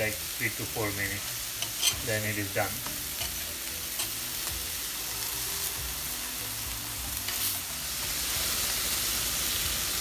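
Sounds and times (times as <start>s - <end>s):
patties sizzling on a griddle: 0.0s - 10.0s
metal spatula scraping griddle: 1.6s - 2.2s.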